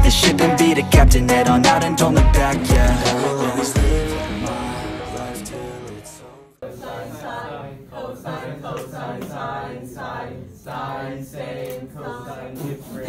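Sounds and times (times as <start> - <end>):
guitar-backed song: 0.0 - 6.2
voices singing together: 0.0 - 13.0.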